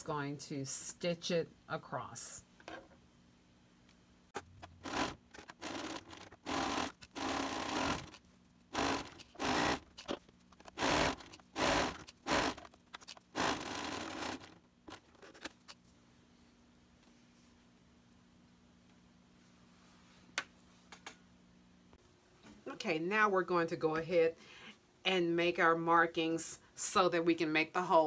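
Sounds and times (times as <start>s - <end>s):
sewing machine rattling: 4.6s - 14.6s.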